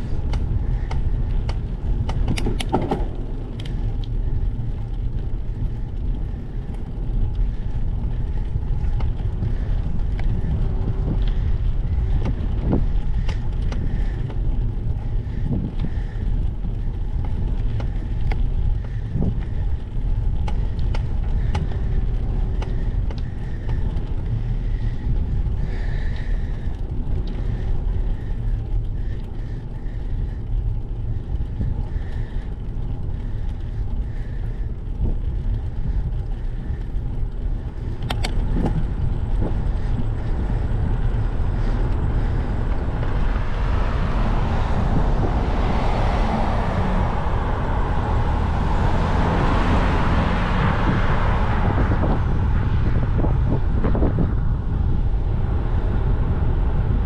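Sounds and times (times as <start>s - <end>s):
light clicks and rattles: 0.0s - 43.4s
bicycle road noise: 0.0s - 57.0s
wind noise on microphone: 0.0s - 57.0s.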